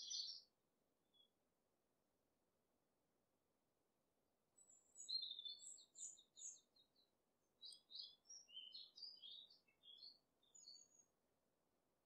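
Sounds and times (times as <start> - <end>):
songbird chirping and trilling: 0.0 - 0.5, 4.6 - 11.2.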